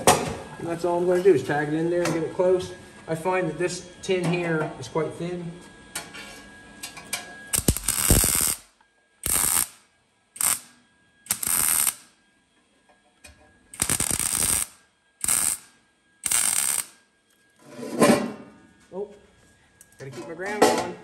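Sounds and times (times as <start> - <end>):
welder arc crackling: 7.5 - 12.2, 13.7 - 17.0.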